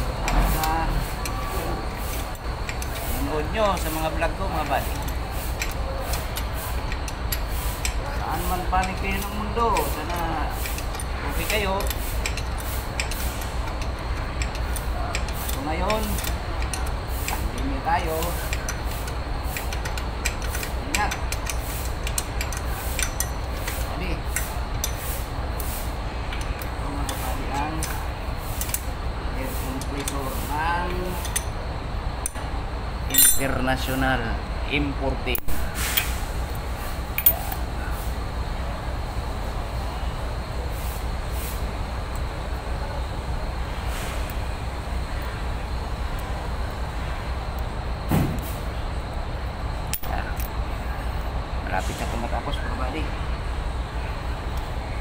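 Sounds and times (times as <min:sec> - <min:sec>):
low mechanical rumble: 0:00.0 - 0:55.0
steady low hum: 0:00.0 - 0:55.0
wrench clinking on metal bolts: 0:02.0 - 0:25.1, 0:30.8 - 0:31.6, 0:33.1 - 0:33.9, 0:37.1 - 0:37.6, 0:49.9 - 0:50.6
thump: 0:48.1 - 0:48.5.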